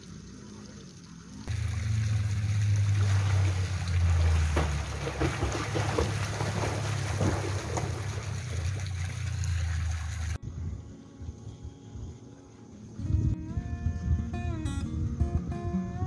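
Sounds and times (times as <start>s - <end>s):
steady low rumble: 0.0s - 16.0s
swimmer splashing in pool: 1.5s - 10.4s.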